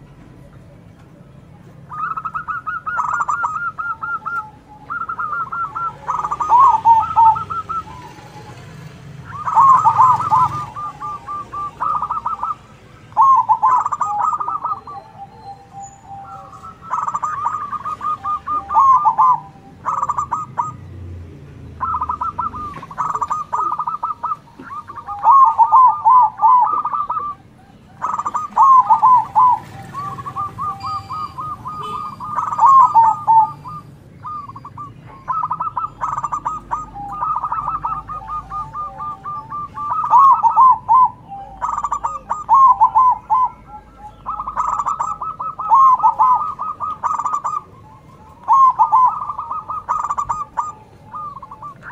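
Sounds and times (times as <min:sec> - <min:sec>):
doves cooing: 0:00.0 - 0:51.9.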